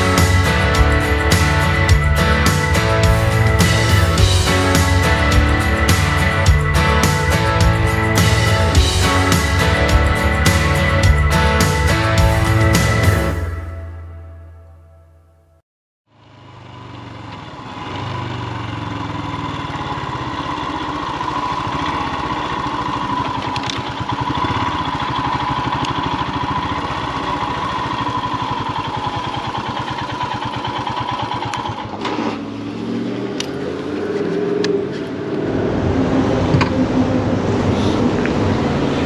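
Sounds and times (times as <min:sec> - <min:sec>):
motorcycle engine running: 0:00.0 - 0:13.8, 0:16.1 - 0:39.0.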